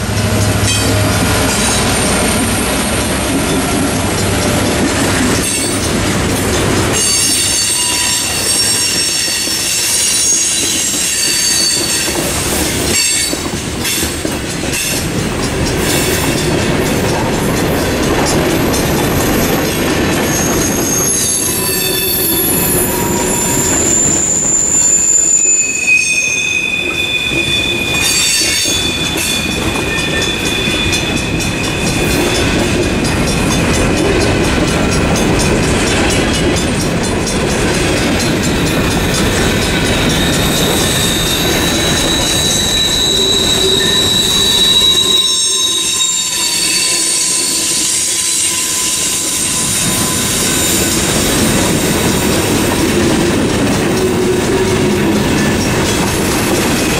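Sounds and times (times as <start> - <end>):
train wheels rumbling on rail: 0.0 - 56.9
high-pitched wheel squeal: 7.0 - 13.4, 20.2 - 32.8, 38.9 - 52.7.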